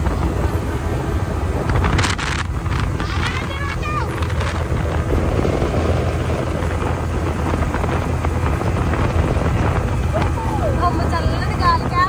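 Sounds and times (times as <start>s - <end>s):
boat engine droning: 0.0s - 12.0s
water noise: 0.0s - 12.0s
wind: 0.0s - 12.0s.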